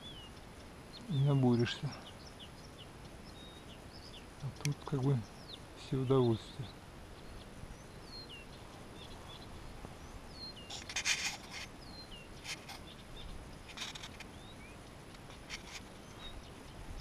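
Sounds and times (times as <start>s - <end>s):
small birds chirping: 0.0s - 17.0s
brief rustles: 10.6s - 11.7s, 12.4s - 12.9s, 13.6s - 14.4s, 15.2s - 15.9s.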